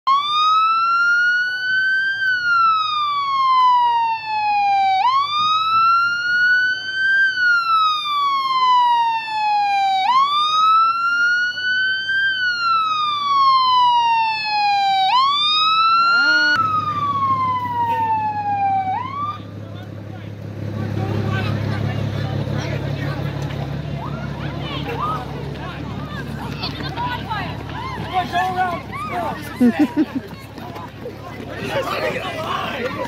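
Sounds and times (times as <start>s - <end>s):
emergency siren wailing: 0.1s - 19.6s, 23.9s - 26.3s, 27.6s - 30.0s.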